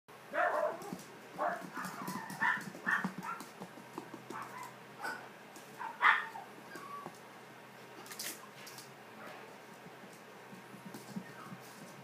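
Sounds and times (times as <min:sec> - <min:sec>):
puppies yipping: 0:00.3 - 0:03.5, 0:04.3 - 0:07.2
rustling and pawing: 0:00.3 - 0:12.0.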